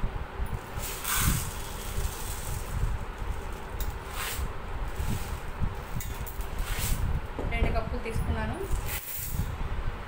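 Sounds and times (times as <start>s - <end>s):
dried lentils rattling: 0.6s - 7.0s.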